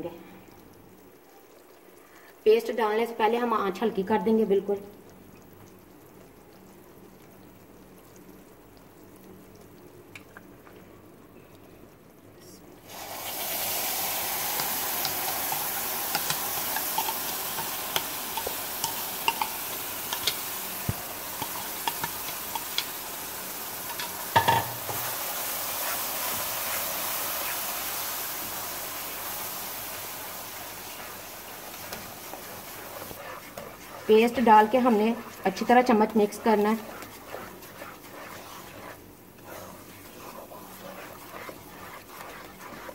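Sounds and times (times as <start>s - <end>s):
food sizzling in a wok: 12.8s - 42.9s
wooden spatula stirring: 14.5s - 42.9s.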